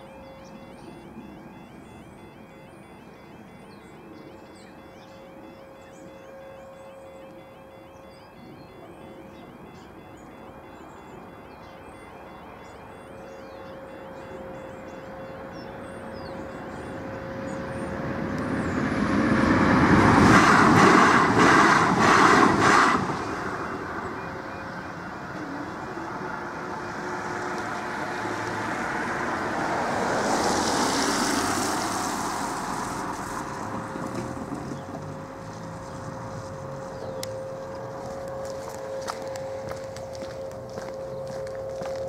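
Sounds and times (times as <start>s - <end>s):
electric train passing: 0.0s - 42.0s
level crossing alarm tone: 0.0s - 42.0s
passing vehicle rush: 16.1s - 42.0s
train wheels clicking: 20.0s - 23.4s.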